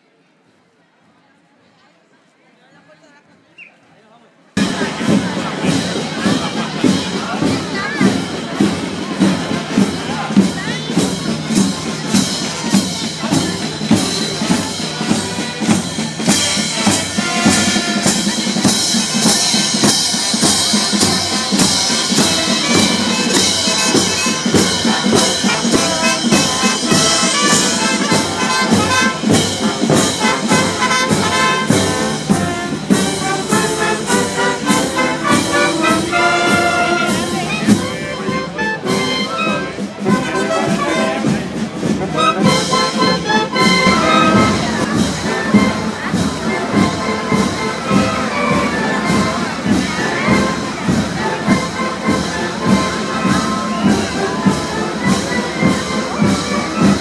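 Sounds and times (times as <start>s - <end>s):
steady drum beat: 4.6s - 57.0s
brass instruments playing: 10.4s - 57.0s.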